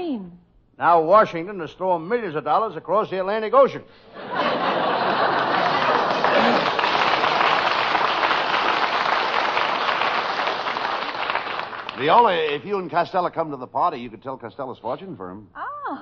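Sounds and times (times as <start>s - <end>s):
audience applauding: 4.8s - 12.7s.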